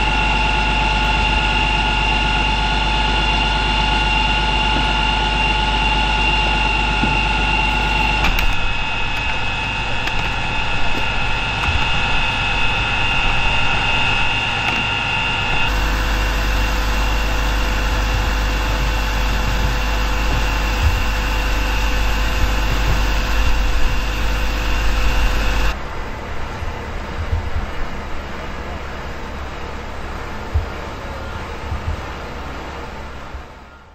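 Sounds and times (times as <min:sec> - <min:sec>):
fire truck engine idling: 0:00.0 - 0:25.8
high whine: 0:00.0 - 0:33.9.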